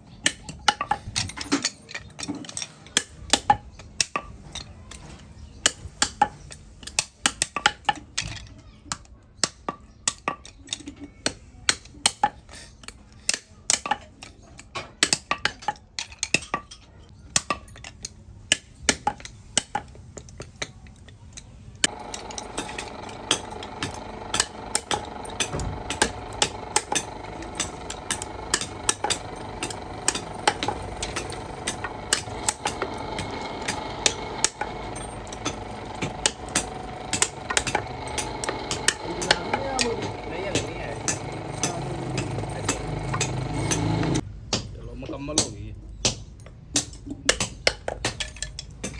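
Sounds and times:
taps and clicks on wooden bobbins: 0.2 - 16.7, 17.3 - 44.2
small electric motor humming: 21.8 - 44.2.

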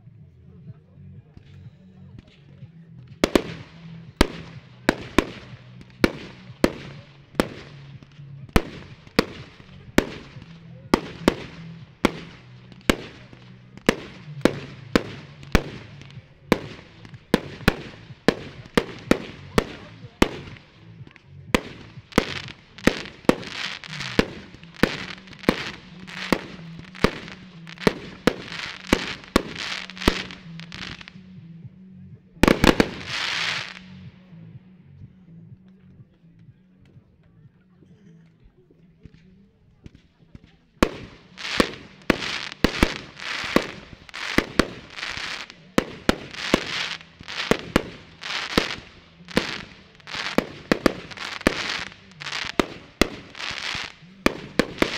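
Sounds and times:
firework hiss: 40.9 - 54.9.

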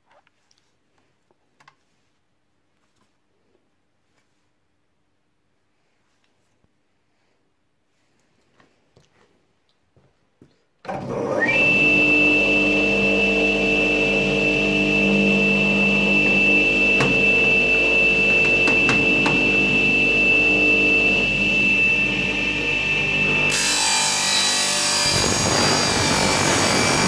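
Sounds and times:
tile saw motor whining: 10.9 - 27.0.

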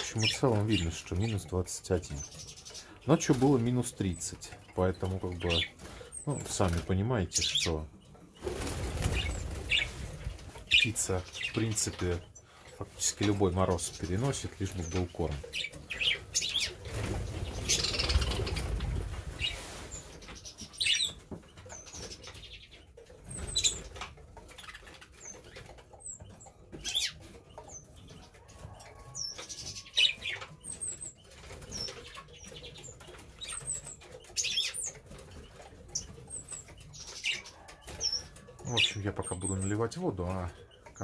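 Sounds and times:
budgerigars chirping: 0.0 - 41.0
budgerigars flapping wings: 8.4 - 12.1, 13.2 - 21.1.

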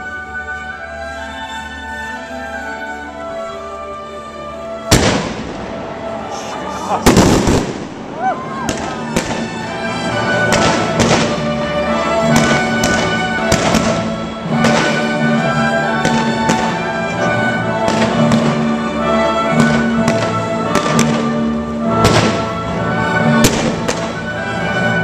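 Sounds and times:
orchestral music: 0.0 - 25.0
fireworks bursting: 4.9 - 5.8, 6.9 - 11.6, 12.2 - 17.0, 17.8 - 18.8, 19.6 - 22.6, 23.3 - 24.5.

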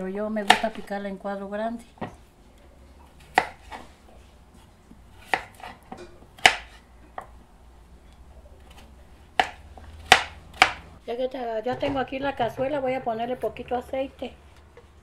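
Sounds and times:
knife striking cutting board: 5.3 - 7.3.

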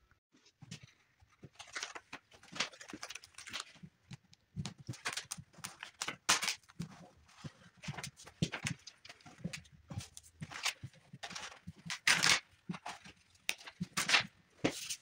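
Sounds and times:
paper backing sheet crinkling: 0.8 - 15.0.

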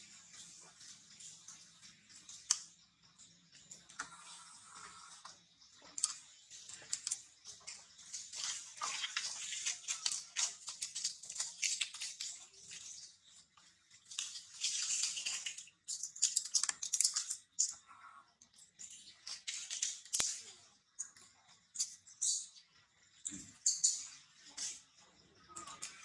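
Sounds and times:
grass and leaves crackling: 6.0 - 17.7.

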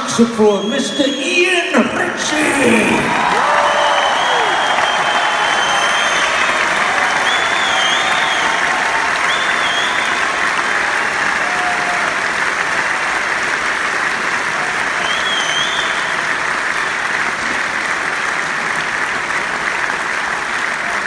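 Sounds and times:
crowd applauding: 2.6 - 21.0
high whistle: 3.9 - 6.5, 7.1 - 10.3, 15.0 - 16.2.

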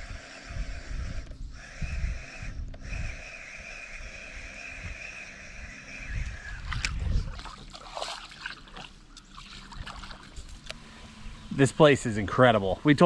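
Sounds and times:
water lapping around kayak: 6.3 - 11.4.

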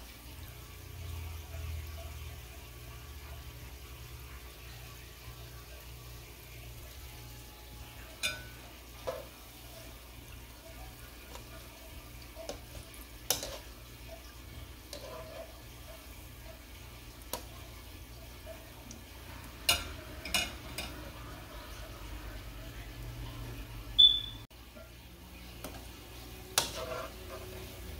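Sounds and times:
food deep-frying in oil: 0.0 - 27.9
wire strainer clinking on pan: 8.2 - 8.6.

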